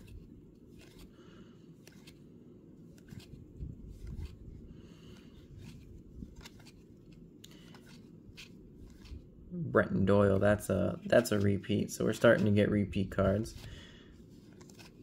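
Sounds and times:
cards being flipped by hand: 0.0 - 9.4, 10.2 - 15.0
low steady hum: 0.0 - 15.0.

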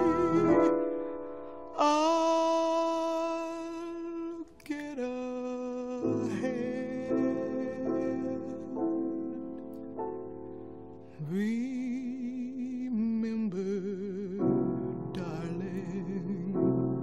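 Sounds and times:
singer holding notes with vibrato: 0.0 - 1.1
piano chords: 0.0 - 17.0.

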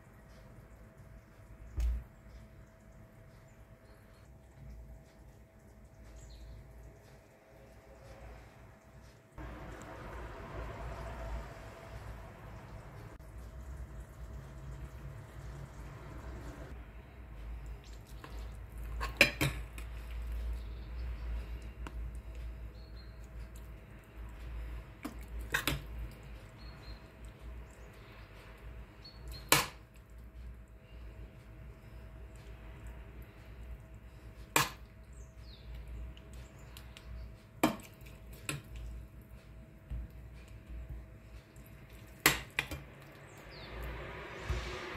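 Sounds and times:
low steady hum: 0.0 - 44.9
kitchen utensils and dishes clinking: 18.8 - 19.8.

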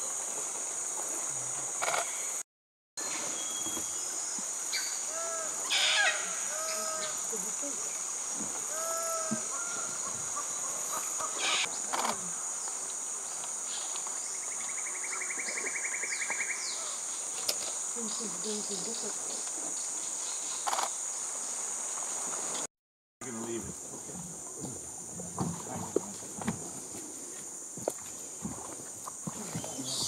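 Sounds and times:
high-pitched insect drone: 3.0 - 19.9
fast insect trill: 3.0 - 22.7
bird calls: 8.6 - 12.2.

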